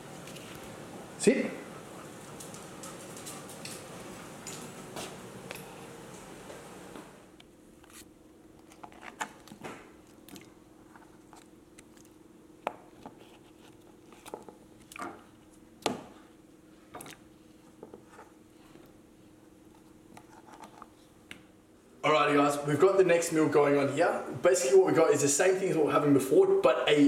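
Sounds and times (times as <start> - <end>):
faint steady hum: 0.0 - 27.0.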